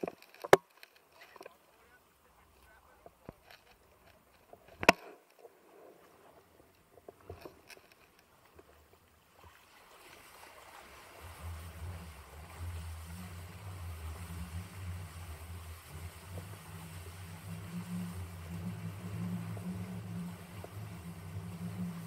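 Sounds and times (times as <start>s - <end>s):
water rushing under board: 0.0s - 22.0s
small water splashes: 7.2s - 22.0s
wind buffeting microphone: 10.5s - 22.0s.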